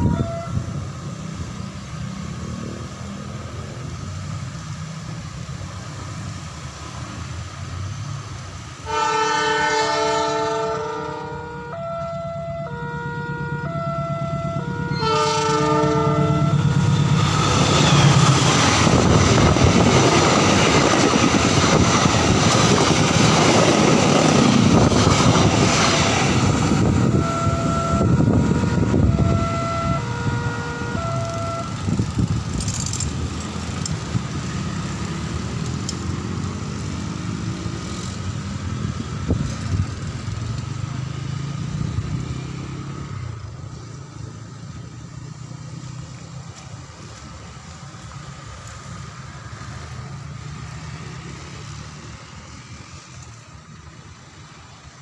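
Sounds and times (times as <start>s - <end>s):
motorbike engines: 0.0s - 55.0s
two-note crossing alarm: 11.4s - 16.8s, 27.1s - 31.9s
train wheels clickety-clack: 16.8s - 27.0s, 31.2s - 40.9s.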